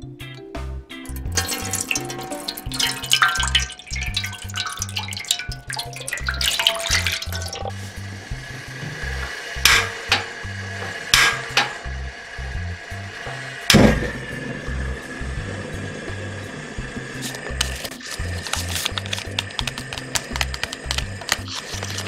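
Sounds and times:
background music with a beat: 0:00.0 - 0:03.2
water pouring into a pan: 0:01.1 - 0:15.9, 0:17.0 - 0:22.0
sharp knocks: 0:11.1 - 0:11.8.

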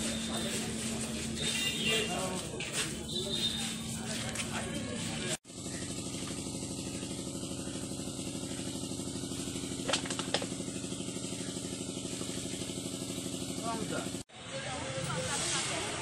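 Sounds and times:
engine idling: 0:00.0 - 0:16.0.

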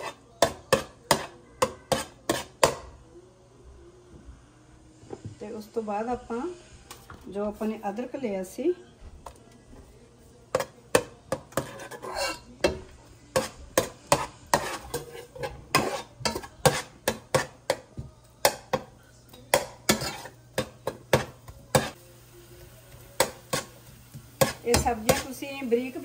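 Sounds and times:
metal spatula clinking in pot: 0:10.5 - 0:17.8, 0:18.4 - 0:22.0.

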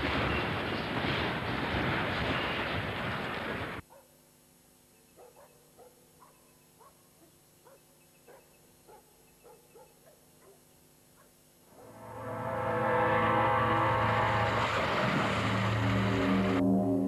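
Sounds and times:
dog barking faintly: 0:03.9 - 0:04.2, 0:05.1 - 0:11.4.

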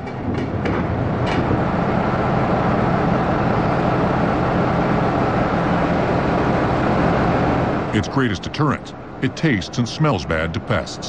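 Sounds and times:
industrial machinery hum: 0:00.0 - 0:11.0.

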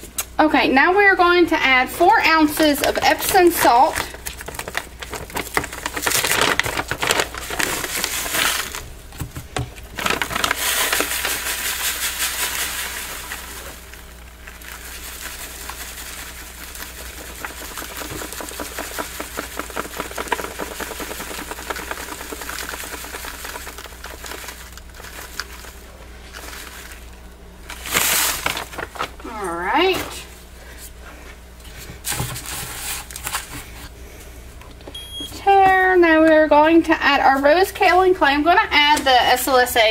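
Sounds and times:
salt crystals pouring into plastic tub: 0:04.4 - 0:08.8, 0:10.0 - 0:28.9.

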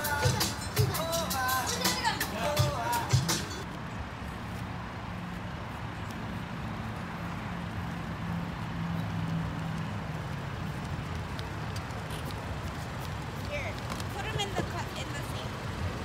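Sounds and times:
car engine humming: 0:00.0 - 0:04.3.

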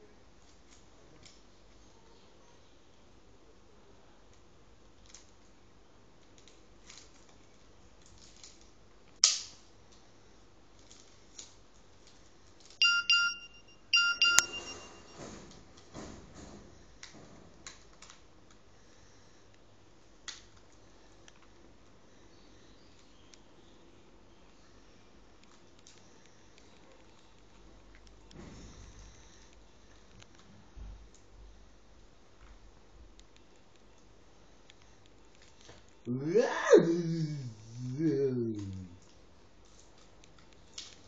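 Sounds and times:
electronic beeping: 0:12.8 - 0:15.2.

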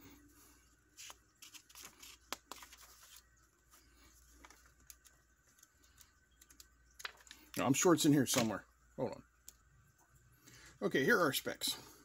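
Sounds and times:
paper pages turning: 0:00.9 - 0:07.6.

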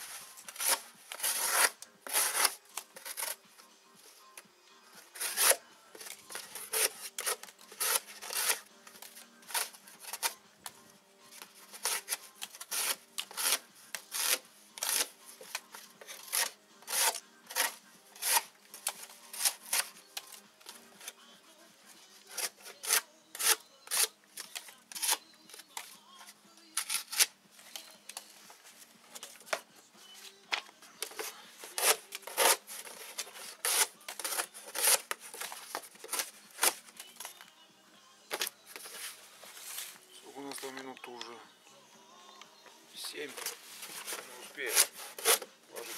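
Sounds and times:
knife slicing cardboard: 0:00.5 - 0:03.3, 0:06.3 - 0:08.7, 0:11.8 - 0:15.1, 0:16.1 - 0:18.5, 0:31.0 - 0:36.8, 0:43.9 - 0:45.9.

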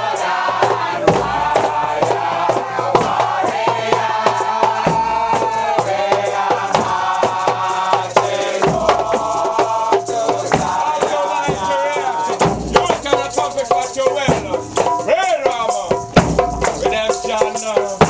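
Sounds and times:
congregation chanting a hymn: 0:00.0 - 0:13.7
hand drums: 0:00.0 - 0:18.0
rattling shakers: 0:00.0 - 0:18.0.

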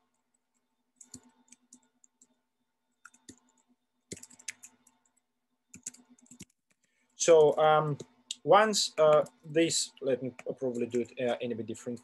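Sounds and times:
keyboard typing clicks: 0:00.5 - 0:02.4, 0:03.0 - 0:08.1.

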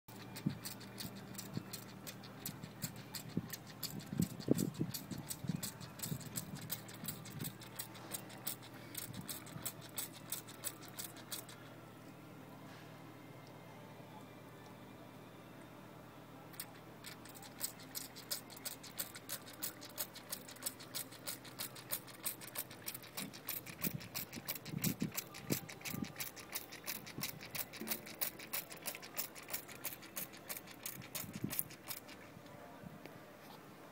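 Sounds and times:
spray bottle squirting: 0:17.4 - 0:32.2.

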